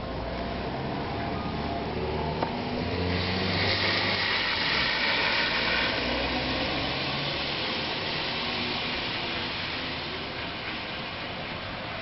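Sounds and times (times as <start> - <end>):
steady hiss: 2.8 - 12.0.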